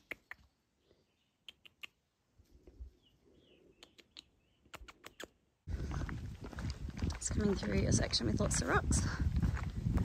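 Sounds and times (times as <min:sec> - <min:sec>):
faint bird chirps: 0:02.8 - 0:05.4.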